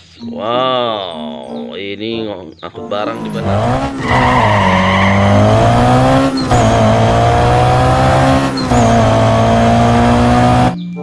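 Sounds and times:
vehicle engine droning: 3.3s - 10.8s.

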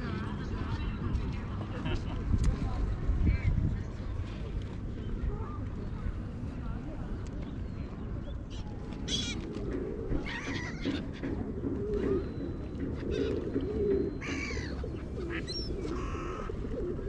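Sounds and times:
gulls calling: 7.7s - 17.0s
pigeons cooing: 9.0s - 17.0s.

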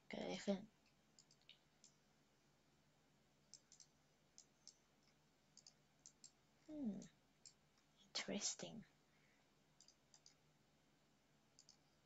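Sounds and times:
computer mouse clicks: 0.8s - 2.0s, 3.5s - 7.9s, 9.8s - 10.4s, 11.6s - 12.0s.

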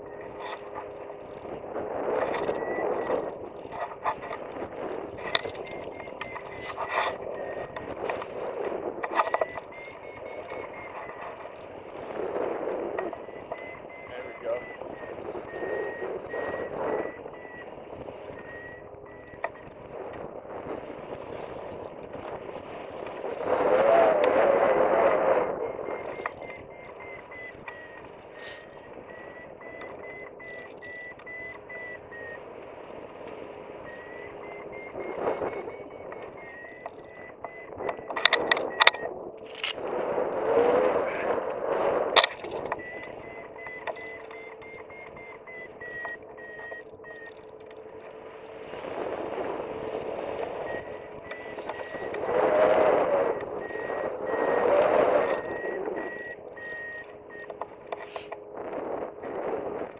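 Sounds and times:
variometer beeping: 0.0s - 59.9s
wind rushing over microphone: 0.0s - 59.9s.

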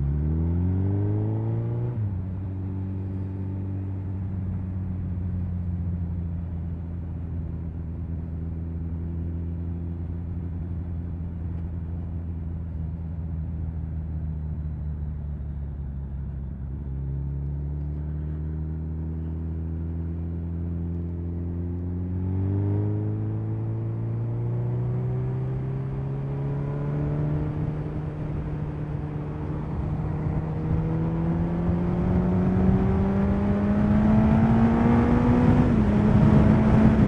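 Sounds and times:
motorcycle engine accelerating: 0.0s - 6.2s, 14.6s - 37.0s
wind rush: 35.1s - 37.0s.

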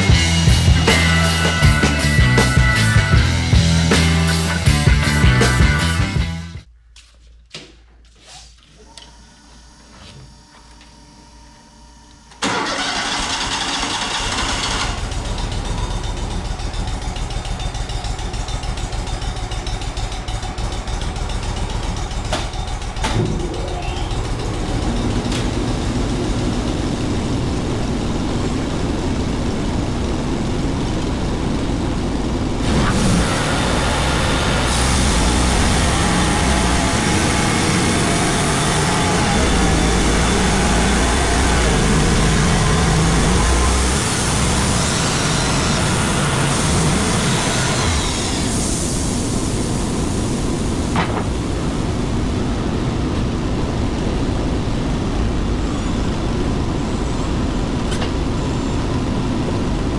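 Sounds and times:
sawmill engine running: 0.0s - 6.7s, 8.8s - 59.9s
band saw cutting log: 32.6s - 49.0s.

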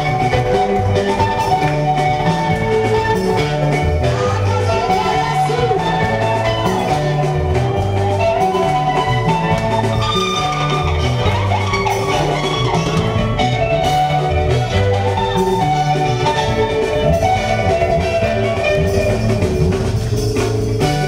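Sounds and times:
gospel band playing: 0.0s - 21.0s
woman singing into microphone: 4.1s - 6.8s.

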